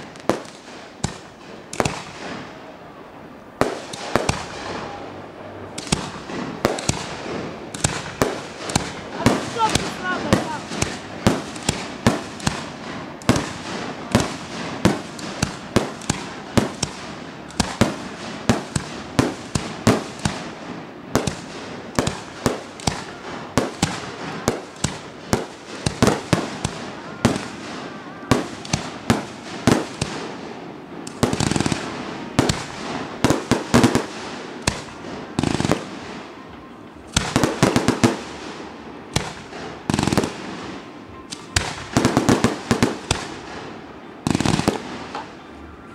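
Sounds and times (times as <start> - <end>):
firework crackling: 0.0 - 45.9
firework shells bursting: 5.7 - 20.6, 21.2 - 45.4.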